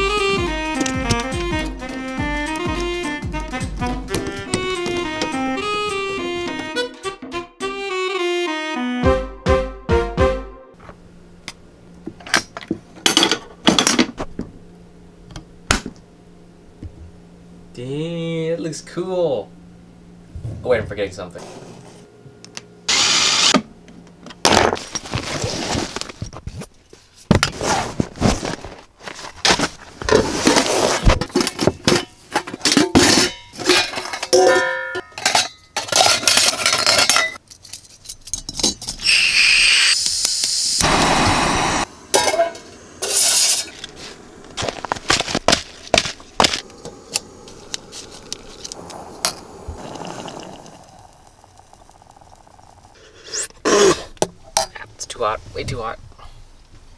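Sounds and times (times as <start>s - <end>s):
metal cookware clattering: 31.3s - 39.0s
hiss: 39.0s - 44.6s, 46.6s - 51.4s.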